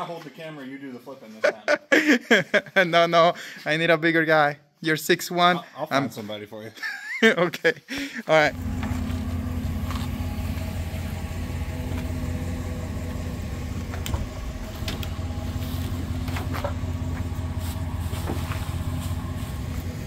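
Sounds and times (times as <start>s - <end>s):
truck engine idling: 8.5s - 20.0s.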